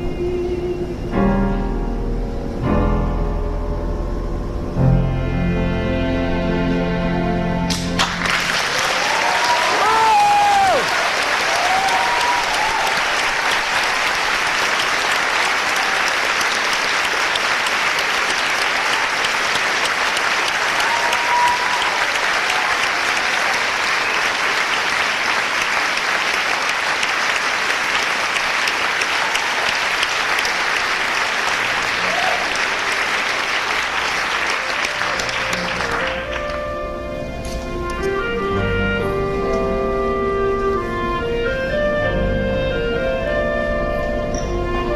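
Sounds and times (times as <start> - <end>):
audience applauding: 7.7 - 36.8
people shouting: 9.1 - 12.9
quiet instrumental music: 35.6 - 44.9.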